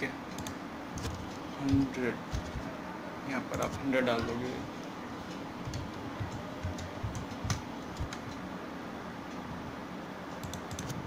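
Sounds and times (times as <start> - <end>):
keyboard and mouse clicks: 0.3 - 2.6, 5.3 - 8.4, 10.3 - 11.0.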